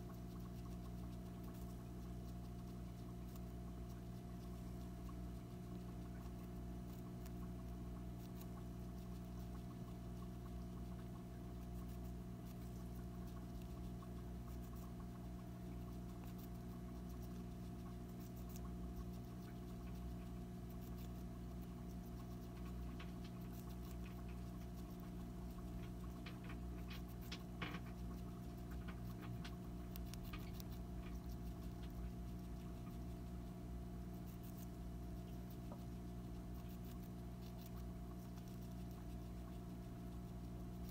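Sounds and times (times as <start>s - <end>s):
hamster nibbling: 0.0s - 40.9s
steady low hum: 0.0s - 40.9s.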